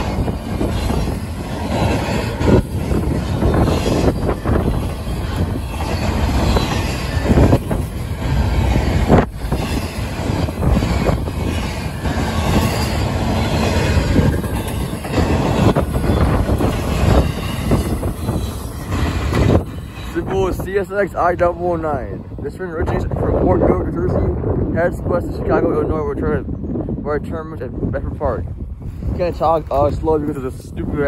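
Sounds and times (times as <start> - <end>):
rail cars clacking: 0.0 - 23.7
freight train wheels rumbling: 0.0 - 31.0.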